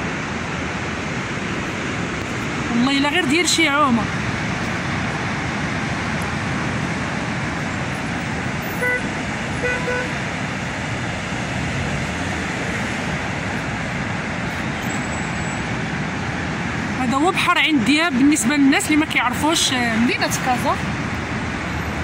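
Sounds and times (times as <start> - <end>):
road traffic: 0.0 - 22.0
car horn toots: 8.7 - 10.2.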